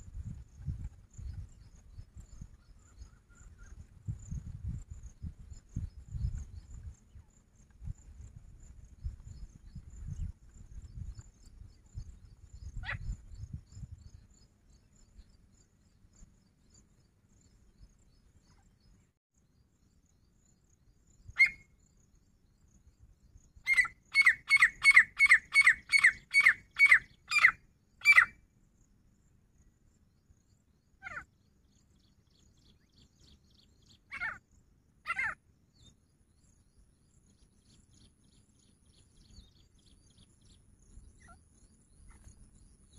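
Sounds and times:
francolin calling: 21.3 - 21.7, 23.6 - 28.4, 32.7 - 35.9.

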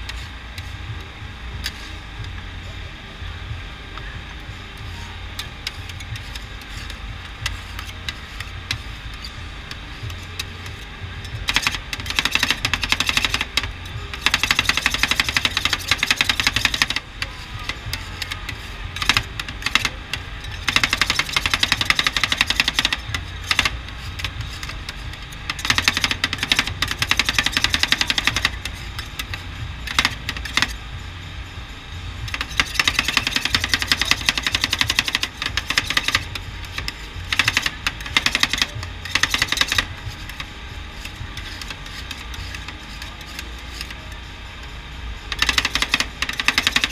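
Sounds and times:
metal spatulas chopping on steel: 4.8 - 30.8, 45.3 - 46.9.

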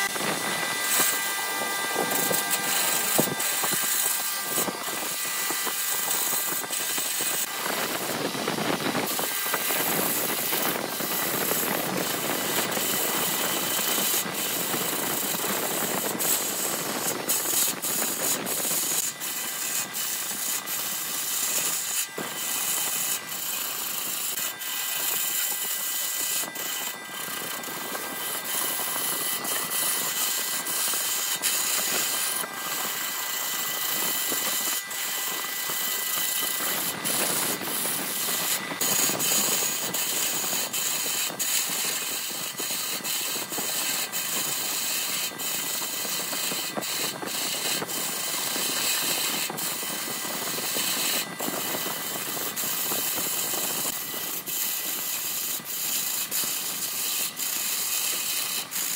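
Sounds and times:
lathe tool scraping wood: 0.0 - 58.9.

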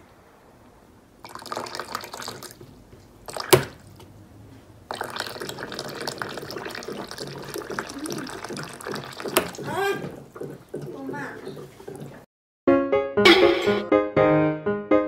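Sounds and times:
water running from tap: 1.2 - 4.0, 4.9 - 12.3.

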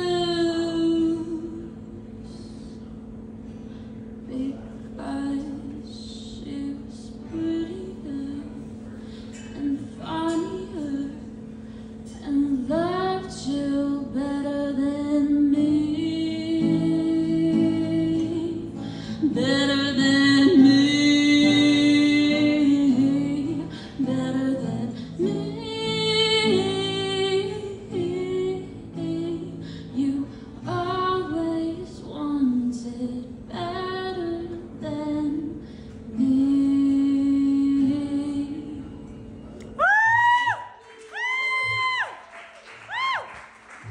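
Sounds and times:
woman singing: 0.0 - 2.1, 4.2 - 11.4, 12.0 - 39.2
strummed acoustic guitar: 14.8 - 32.9.

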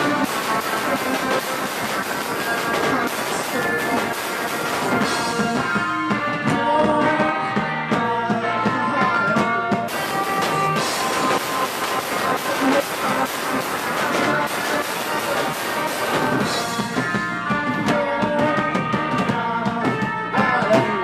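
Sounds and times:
drums: 0.0 - 21.0
electric guitar: 0.0 - 21.0
cymbal wash: 9.9 - 16.8.

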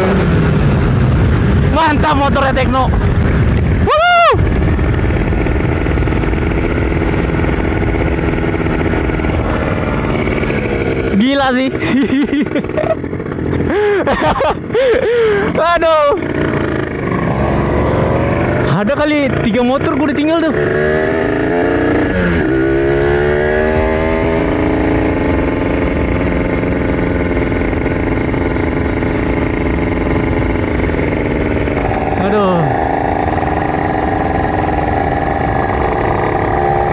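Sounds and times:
wind rushing over microphone: 0.0 - 11.1
motorcycle engine running hard: 0.0 - 36.9.

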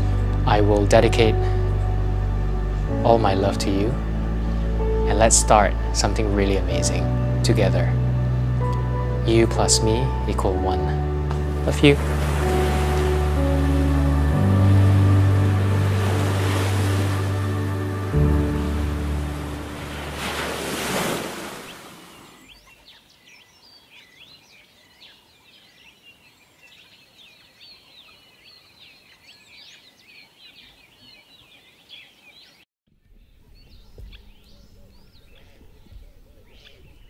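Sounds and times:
small birds chirping and trilling: 21.5 - 37.0.

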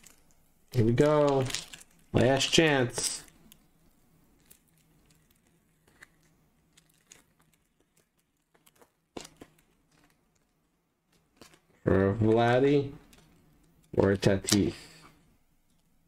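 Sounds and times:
wrapper tearing and crinkling: 0.0 - 3.6, 4.3 - 11.8.

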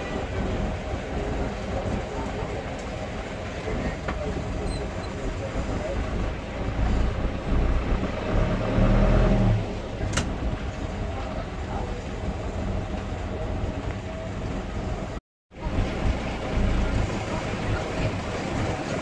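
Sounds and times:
street traffic noise: 0.0 - 19.0
vehicle passing with low rumble: 5.9 - 10.0.

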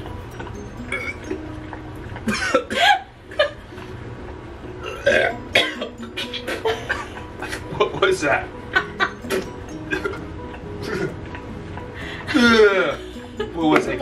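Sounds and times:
man gagging and retching: 0.9 - 1.4, 4.8 - 6.6, 10.8 - 11.4.

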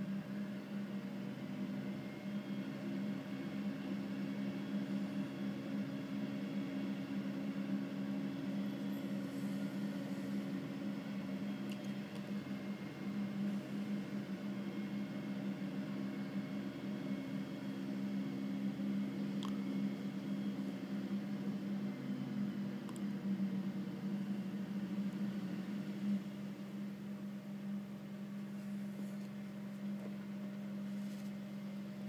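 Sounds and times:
diesel engines droning: 8.6 - 26.3.

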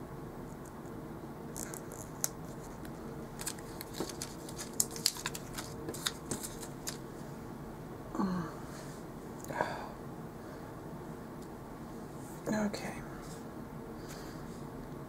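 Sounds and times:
faint steady hum: 0.0 - 15.0
paper stickers crackling: 1.6 - 7.0.

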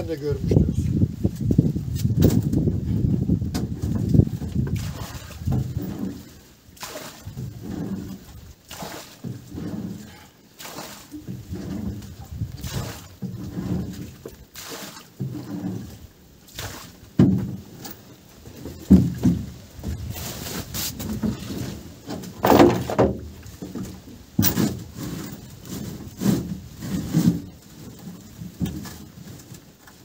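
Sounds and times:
thumps and knocks in a boat: 1.3 - 30.0.

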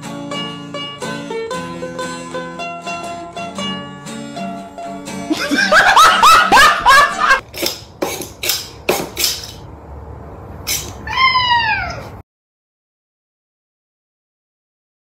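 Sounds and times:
short scratchy noises: 10.6 - 11.1
cat meowing: 10.9 - 12.2.

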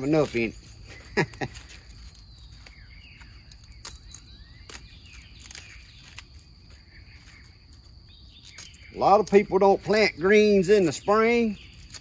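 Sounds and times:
leaves clicking being handled: 0.0 - 7.5, 10.7 - 12.0
birds chirping faintly: 0.0 - 12.0.

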